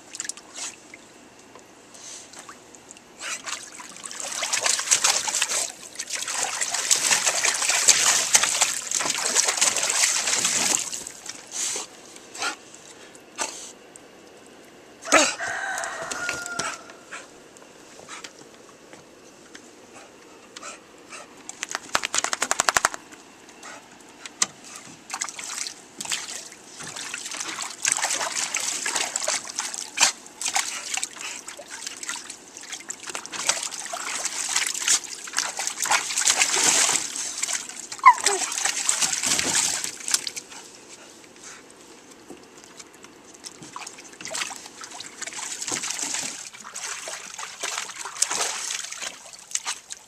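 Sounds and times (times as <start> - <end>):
dog splashing water in a pool: 2.3 - 13.3, 21.5 - 23.1, 24.6 - 50.0.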